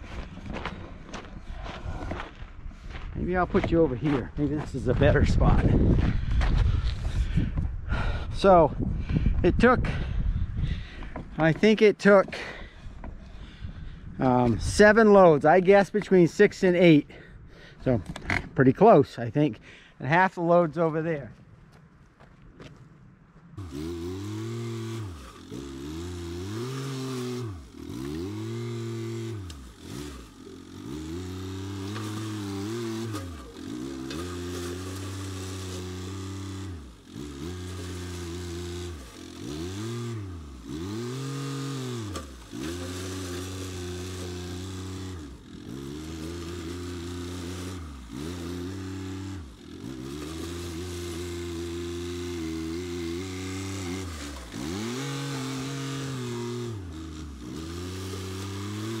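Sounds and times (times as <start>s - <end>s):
tractor engine running: 0.0s - 21.1s, 23.1s - 59.0s
loader pushing gravel: 23.6s - 59.0s.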